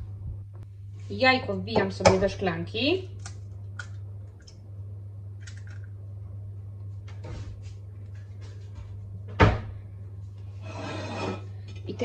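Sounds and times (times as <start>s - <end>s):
steady low hum: 0.0s - 12.0s
eggshell clicks and crackles: 3.2s - 4.6s, 5.4s - 6.0s.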